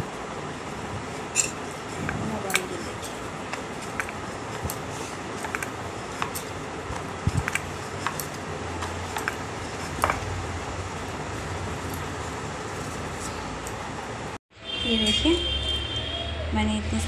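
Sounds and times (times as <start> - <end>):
hands working dough: 0.0 - 14.1
glass bangles clinking: 1.3 - 1.6.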